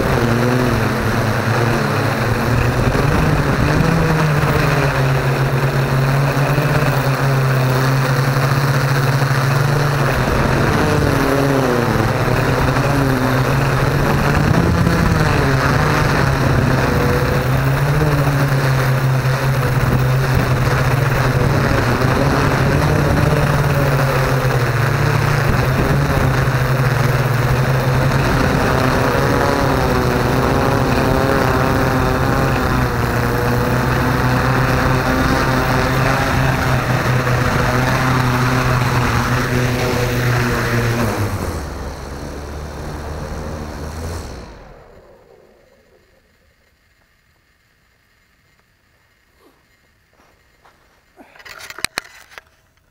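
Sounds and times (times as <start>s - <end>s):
drone propellers whirring: 0.0s - 52.4s.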